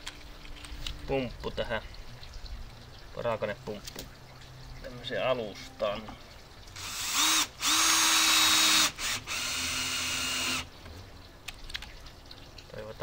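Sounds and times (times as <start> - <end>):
cordless drill driving screws: 6.8 - 10.7.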